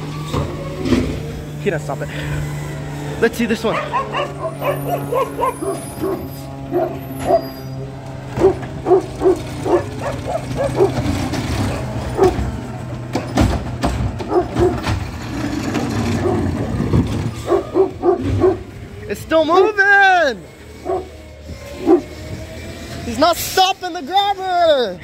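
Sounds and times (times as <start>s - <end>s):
hydraulic arm lifting cart: 0.0s - 19.1s, 20.4s - 23.9s
garbage truck running: 0.0s - 25.0s
dog barking: 3.7s - 7.5s, 8.4s - 11.0s, 12.2s - 12.4s, 14.3s - 14.8s, 16.2s - 16.5s, 17.4s - 18.7s, 20.8s - 21.1s, 21.8s - 22.1s
cart knocking: 8.4s - 18.6s.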